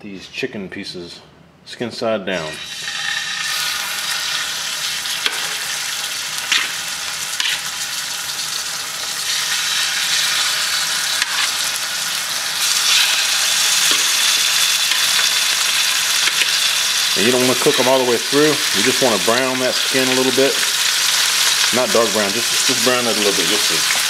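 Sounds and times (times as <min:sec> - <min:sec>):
chicken sizzling in a pan: 0:02.5 - 0:24.0.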